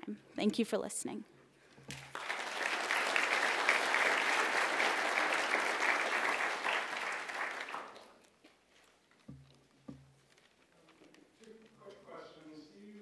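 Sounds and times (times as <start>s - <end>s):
audience applauding: 1.9s - 8.2s.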